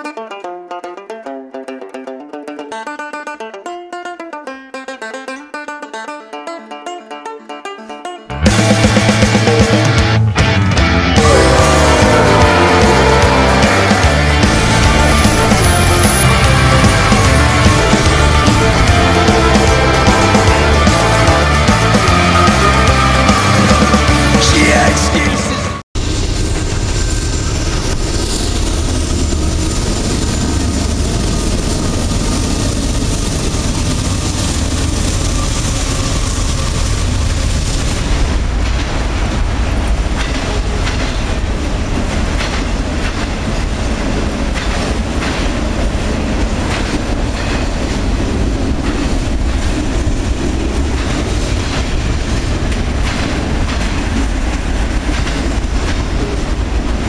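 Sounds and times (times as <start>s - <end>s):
freight train rumbling past: 8.3s - 57.0s
train cars clacking over rail joints: 27.6s - 57.0s.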